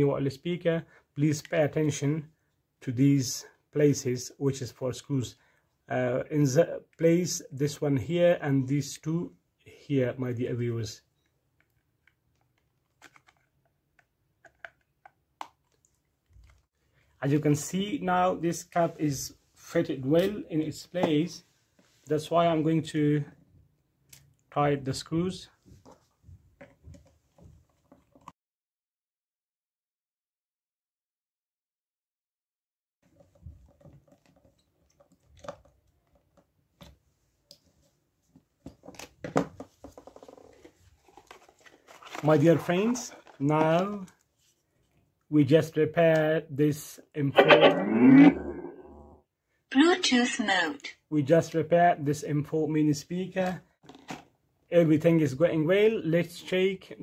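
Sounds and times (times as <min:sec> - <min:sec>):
plastic parts clicking together: 0:11.6 - 0:16.6.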